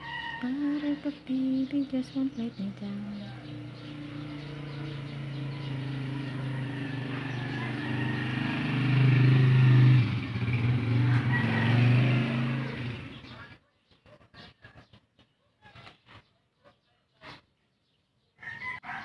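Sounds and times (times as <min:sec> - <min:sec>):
engine humming: 0:00.0 - 0:13.5.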